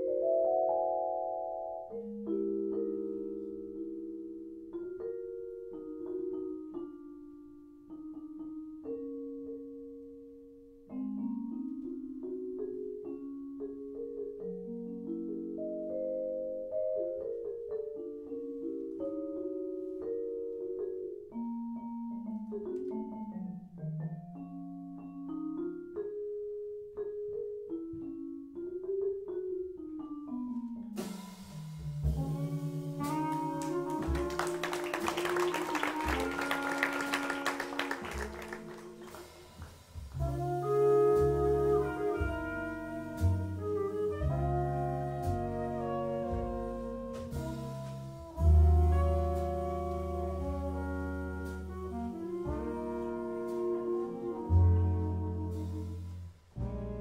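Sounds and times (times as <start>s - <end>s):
bass: 1.8s - 57.0s
vibraphone notes: 10.9s - 34.6s
drums with cymbals: 31.0s - 33.4s, 38.9s - 44.4s
clarinet: 31.9s - 57.0s.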